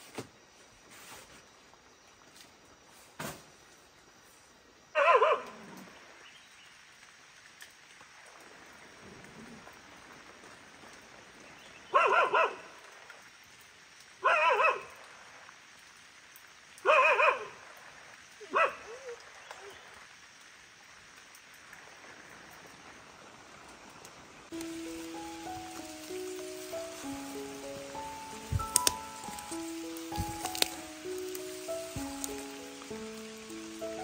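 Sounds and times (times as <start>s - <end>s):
dog barking: 5.0s - 5.6s, 11.9s - 12.7s, 14.2s - 15.0s, 16.8s - 17.6s, 18.5s - 19.2s.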